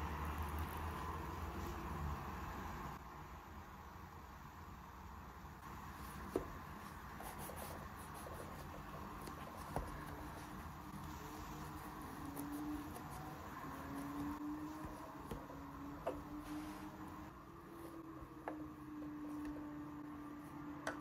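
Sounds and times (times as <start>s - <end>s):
bread crust rustling and crackling: 5.9s - 15.6s.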